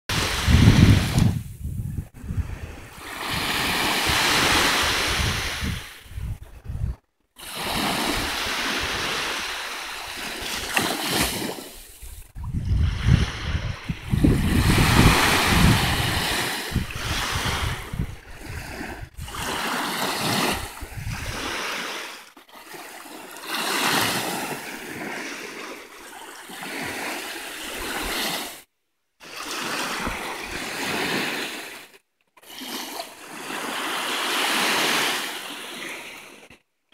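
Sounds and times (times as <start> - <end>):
waves washing up a sandy beach: 0.1 - 1.6, 2.4 - 6.1, 7.4 - 36.6
wind rumbling on microphone: 0.1 - 7.1, 11.9 - 19.6, 20.5 - 21.6.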